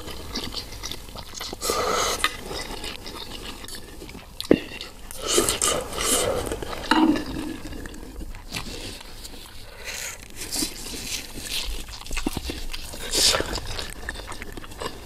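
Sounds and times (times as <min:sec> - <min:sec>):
slurping broth: 0:00.0 - 0:11.7.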